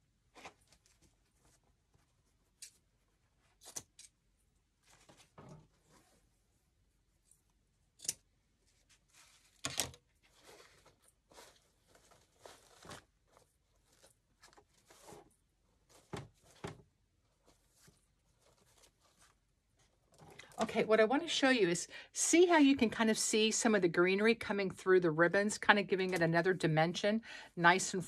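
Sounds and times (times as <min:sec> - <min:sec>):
artificial stems and ribbon rustling: 0:00.3 - 0:06.5, 0:07.2 - 0:21.6.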